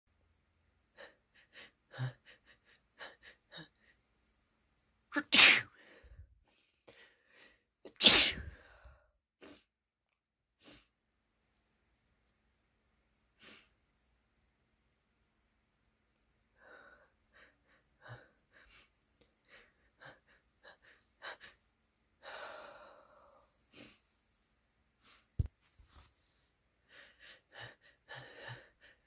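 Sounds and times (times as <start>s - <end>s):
loud sneezes: 5.2s - 5.8s, 7.9s - 8.6s.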